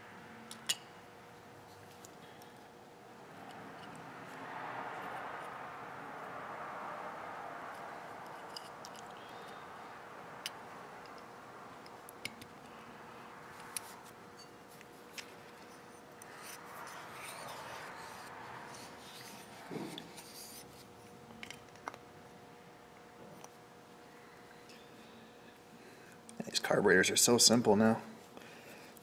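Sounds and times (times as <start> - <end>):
faint steady hum: 0.0 - 29.0
small parts clicking and tapping: 8.2 - 9.6.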